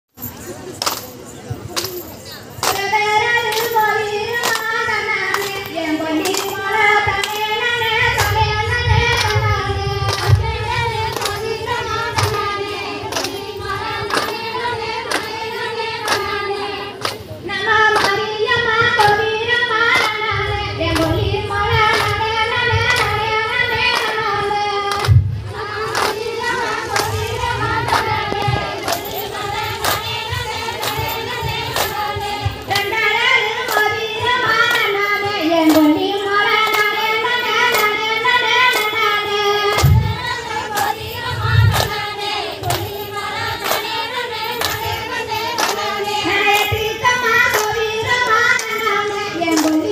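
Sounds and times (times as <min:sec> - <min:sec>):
hands clapping in unison: 0:00.7 - 0:07.5, 0:08.1 - 0:08.4, 0:09.1 - 0:18.3, 0:19.0 - 0:19.2, 0:19.9 - 0:21.2, 0:21.8 - 0:37.0, 0:37.6 - 0:49.9
women singing through microphone: 0:01.9 - 0:49.9.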